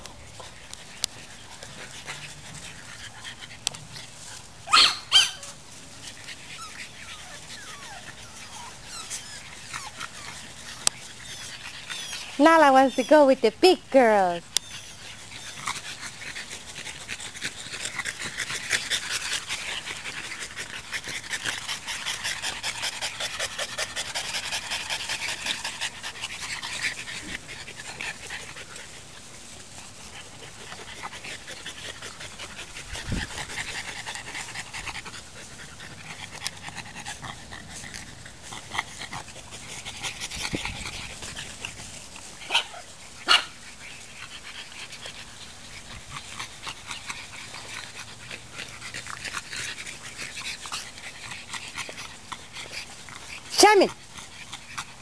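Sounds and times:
dogs panting: 0.3 - 55.0.

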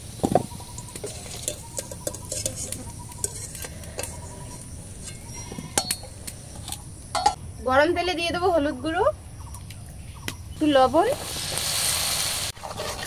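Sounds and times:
frying oil sizzling: 0.0 - 7.1, 10.6 - 13.0
skimmer clinking on metal bowl: 0.8 - 6.1.

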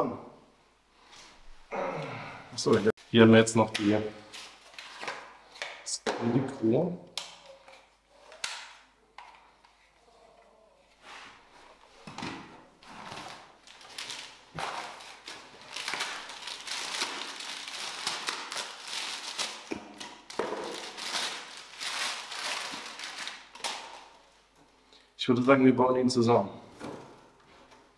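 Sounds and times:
packing paper rustling: 12.8 - 24.2.

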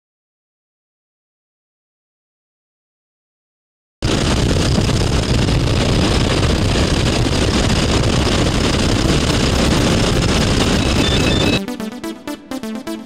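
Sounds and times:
rushing air: 4.0 - 11.6
aircraft engine drone: 4.0 - 13.0.

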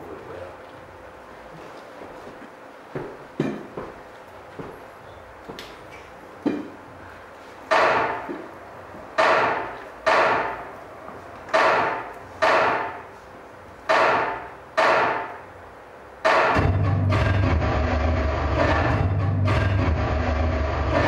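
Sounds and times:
heavy drum strokes: 16.3 - 21.0
music with deep low rumble: 16.6 - 21.0.

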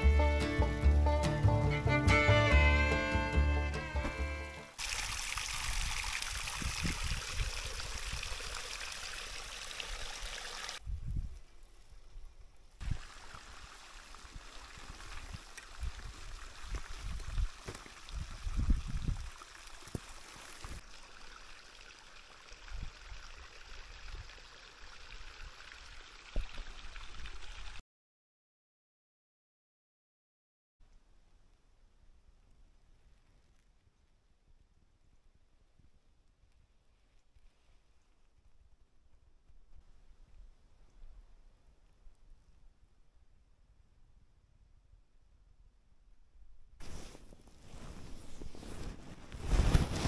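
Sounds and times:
water running into a trough: 4.8 - 10.8, 12.8 - 27.8.

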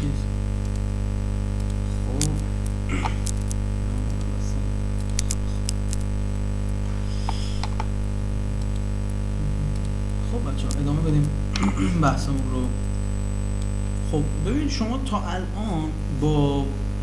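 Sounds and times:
electrical mains hum: 0.0 - 17.0
sharp clicks: 0.6 - 0.9, 1.6 - 4.3, 4.9 - 11.7.

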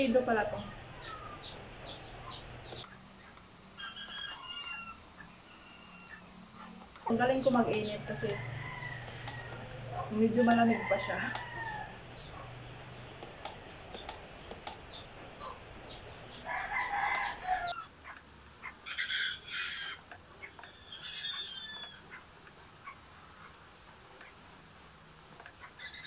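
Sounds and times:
chickens calling: 0.0 - 26.0
rooster crowing: 3.6 - 6.8, 7.7 - 12.4, 16.3 - 18.0, 18.7 - 22.2.

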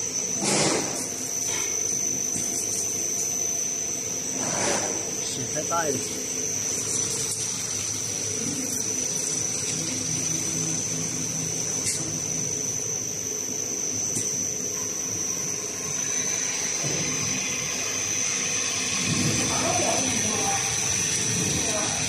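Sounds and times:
roll cutting machine whirring: 15.9 - 22.0.

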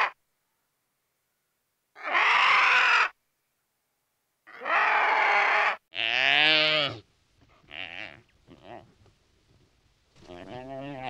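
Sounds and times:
oryx moaning call: 10.2 - 11.0.

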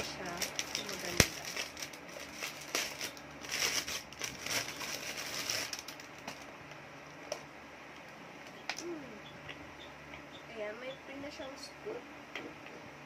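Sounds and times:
plastic wrapping crinkling: 0.0 - 6.6.

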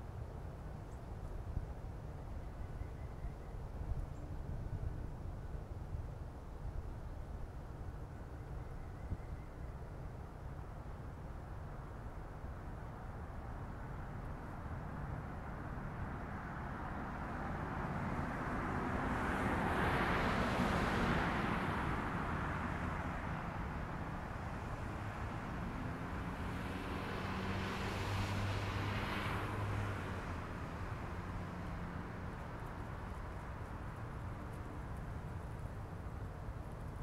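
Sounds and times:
low engine hum: 0.0 - 37.0
vehicles passing by: 11.4 - 37.0.

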